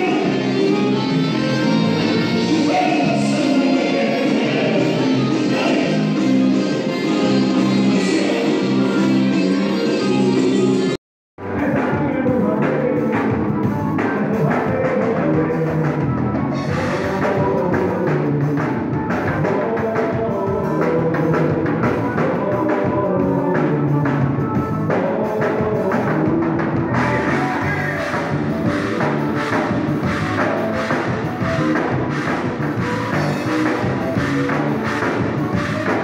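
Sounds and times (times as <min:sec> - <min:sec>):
person singing: 0:00.0 - 0:10.1, 0:11.4 - 0:29.5
accordion: 0:00.0 - 0:14.5, 0:25.7 - 0:36.0
drums: 0:00.0 - 0:36.0.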